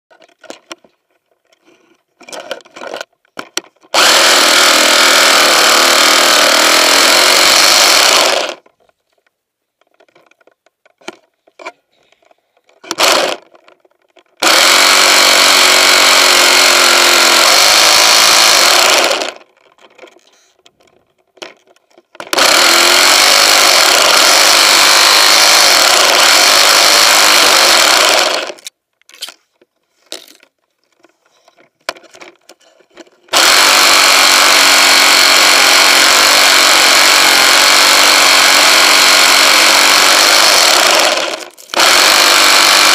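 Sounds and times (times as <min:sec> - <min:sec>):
pole saw cutting branches: 0:03.9 - 0:08.6, 0:12.8 - 0:13.6, 0:14.4 - 0:19.5, 0:22.2 - 0:28.7, 0:33.3 - 0:42.9.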